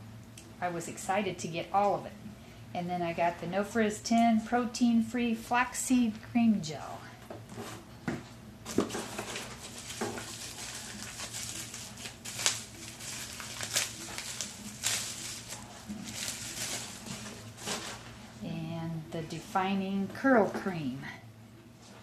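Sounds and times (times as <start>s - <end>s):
plastic packaging crinkling: 8.7s - 18.2s.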